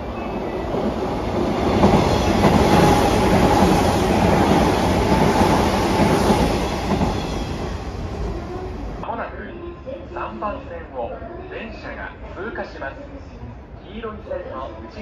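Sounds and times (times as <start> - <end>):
train wheels rattling on rails: 0.0 - 9.0
electric train passing: 0.0 - 9.1.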